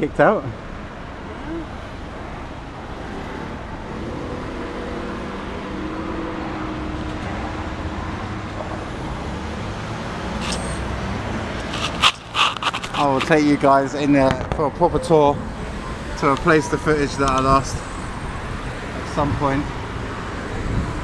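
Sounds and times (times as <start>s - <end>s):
road traffic noise: 0.0s - 21.0s
vehicle engine hum: 6.5s - 21.0s.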